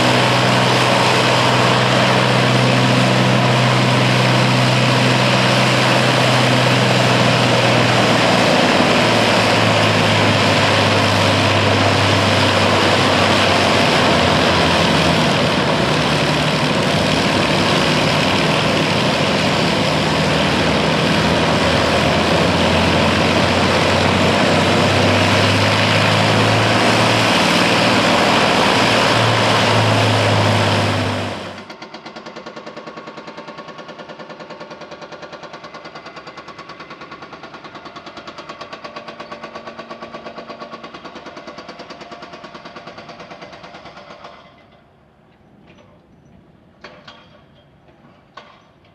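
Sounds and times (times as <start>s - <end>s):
aircraft engine running: 0.0s - 44.0s.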